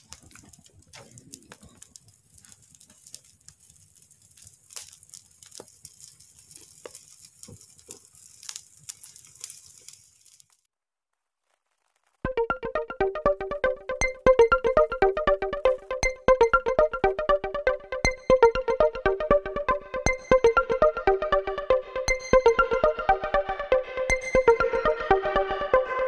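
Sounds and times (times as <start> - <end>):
steady hiss: 0.0 - 10.7
wood fire crackling and popping: 0.0 - 25.7.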